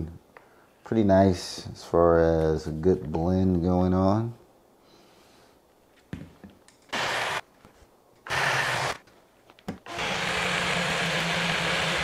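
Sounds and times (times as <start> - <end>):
blender motor running: 7.0 - 7.4, 8.3 - 9.0, 9.9 - 12.0.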